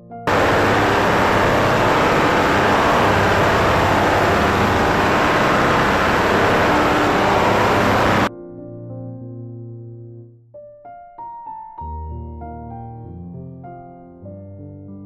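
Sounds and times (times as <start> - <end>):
low hum: 0.3 - 8.3
ultrasonic cleaner hissing: 0.3 - 8.3.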